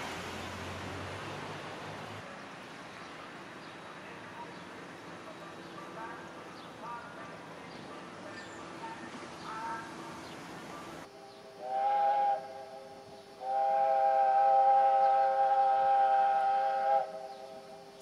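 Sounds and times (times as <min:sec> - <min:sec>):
steam locomotive whistle: 0:11.2 - 0:17.9.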